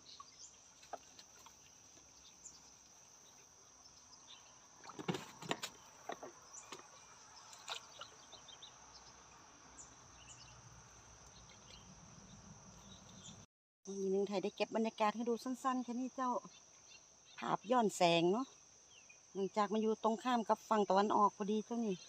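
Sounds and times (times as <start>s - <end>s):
water drips and splashes: 4.7s - 8.6s.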